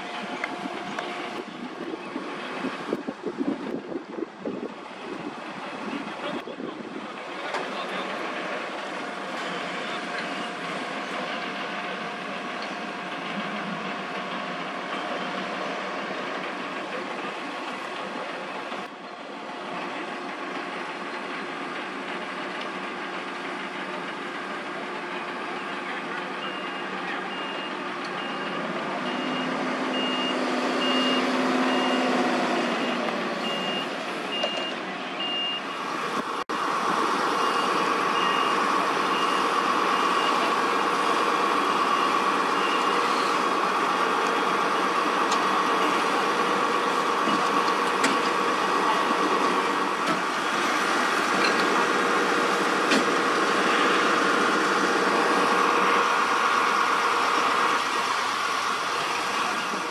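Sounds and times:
engine drone with held hum: 0.0 - 59.9
fire engines running: 0.0 - 59.9
reversing alarm beeping: 26.4 - 35.8, 37.3 - 40.6, 41.8 - 43.4.

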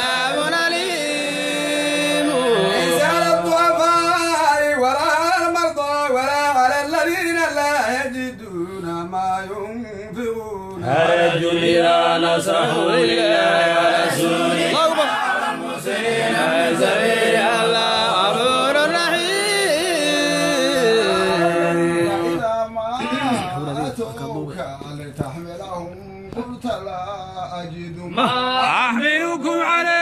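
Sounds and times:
men chanting together: 0.0 - 5.2, 10.8 - 22.4.

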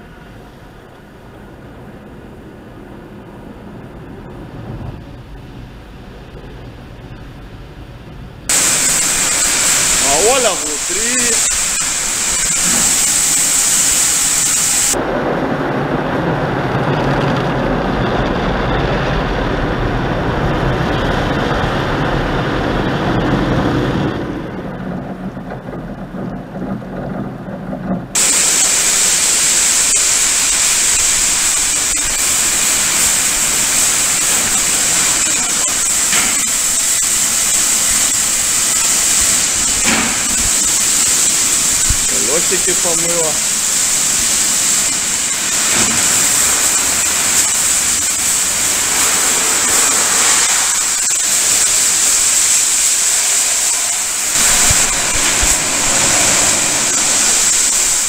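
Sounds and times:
water spraying hiss: 8.5 - 15.0, 28.2 - 58.0.

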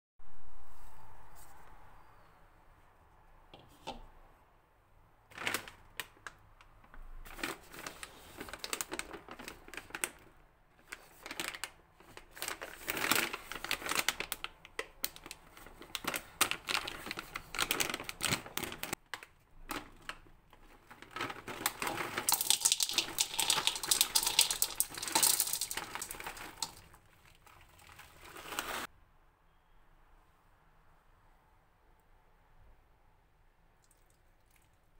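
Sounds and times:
plastic bag crinkling: 5.3 - 6.4, 7.2 - 28.9
granola pouring into bowl: 21.0 - 28.9.

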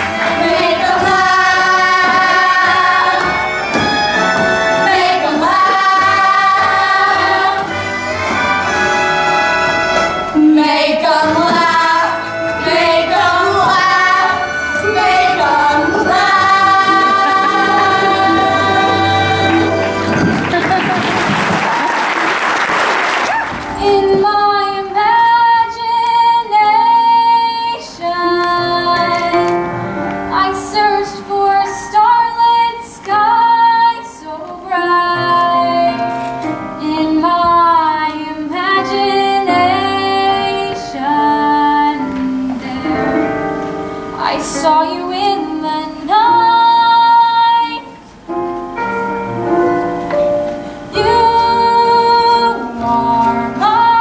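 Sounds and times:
instrumental accompaniment: 0.0 - 21.6, 23.2 - 54.0
applause: 19.8 - 23.7
girl singing: 23.7 - 29.5, 30.3 - 36.1, 36.8 - 43.3, 44.2 - 48.0, 50.9 - 54.0.

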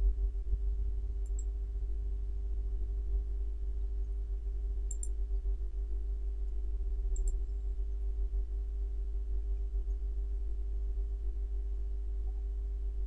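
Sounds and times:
faint steady tones: 0.0 - 13.0
low electrical hum: 0.0 - 13.0
computer mouse clicks: 1.2 - 1.5, 4.9 - 5.1, 7.2 - 7.4.

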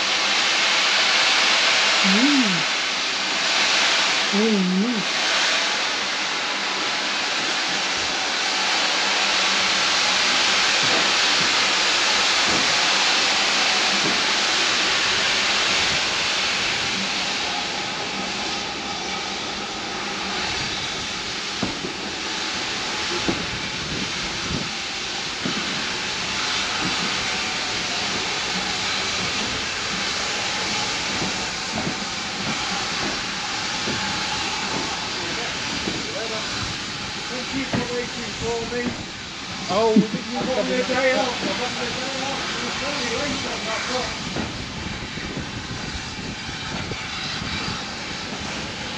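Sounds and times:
steam locomotive hissing: 0.0 - 48.9
train knocks and clicks: 10.8 - 16.0, 20.0 - 45.7, 46.3 - 48.9.

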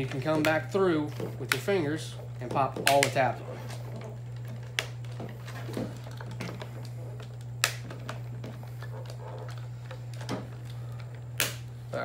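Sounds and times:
steady low hum: 0.0 - 12.0
plastic tabs snapping: 7.3 - 8.2.

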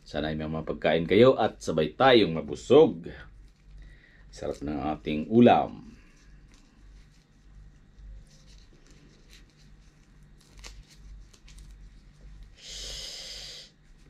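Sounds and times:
hissing intake of breath: 12.6 - 13.8.

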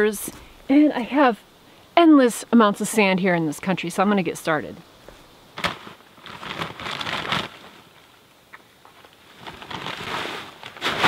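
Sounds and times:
gravel bag rustling and crinkling: 5.0 - 11.0.

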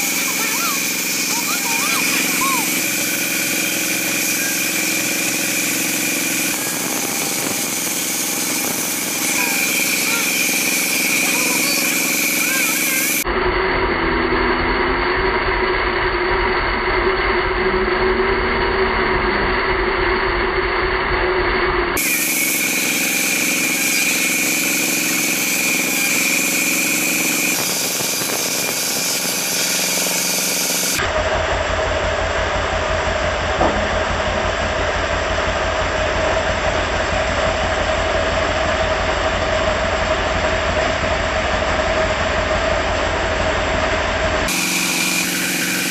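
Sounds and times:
band saw cutting wood: 0.0 - 20.2, 22.0 - 31.5, 44.4 - 45.9.

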